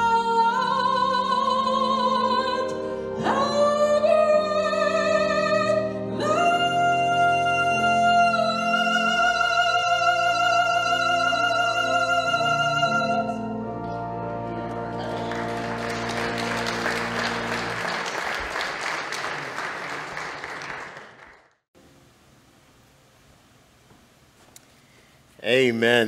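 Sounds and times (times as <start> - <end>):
woman singing: 0.0 - 13.4
sustained accompaniment chords: 1.6 - 18.8
congregation applauding: 14.8 - 21.6.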